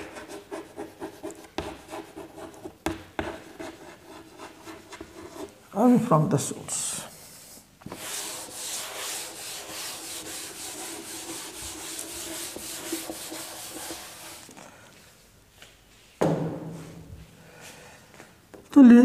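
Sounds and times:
duster rubbing on blackboard: 7.1 - 14.6.

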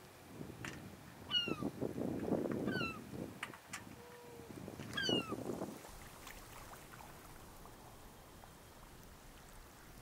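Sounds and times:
rush of water: 0.0 - 10.0
water lapping: 5.6 - 10.0.

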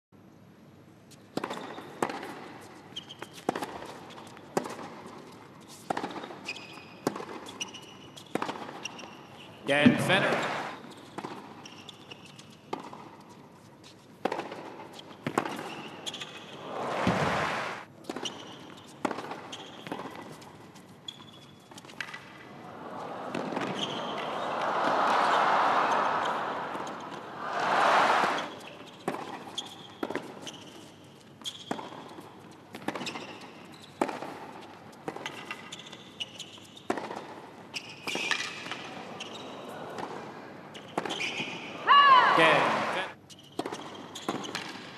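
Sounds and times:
shoes squeaking on court: 1.1 - 4.5, 5.6 - 14.2, 14.9 - 22.4, 23.4 - 24.5, 28.3 - 39.8, 40.7 - 41.7, 43.2 - 44.9
crowd cheering and applause: 9.9 - 10.8, 16.6 - 17.8, 22.5 - 28.6, 41.8 - 43.2
tennis ball struck by rackets: 14.2 - 18.3, 23.3 - 24.2
tennis racket striking ball: 23.3 - 30.4.

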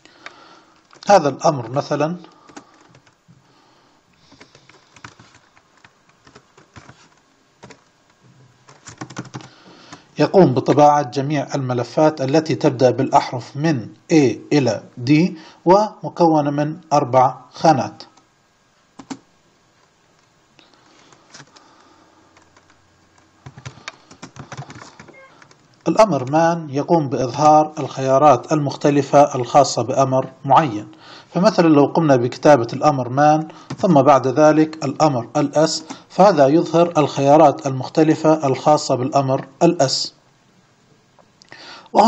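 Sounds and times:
computer keyboard key presses: 4.3 - 7.0, 8.7 - 9.5, 19.0 - 19.2, 23.4 - 25.6.

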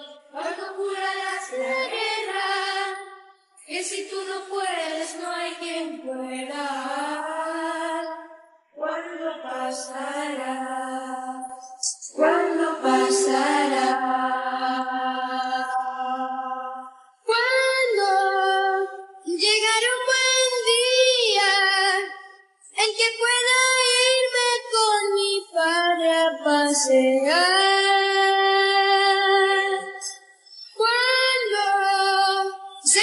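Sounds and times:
boys singing unaccompanied: 0.0 - 22.2, 22.8 - 30.1, 30.7 - 33.0.

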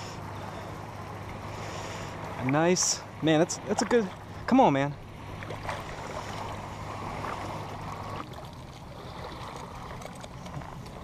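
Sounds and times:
water splashing and sloshing: 0.0 - 11.0.

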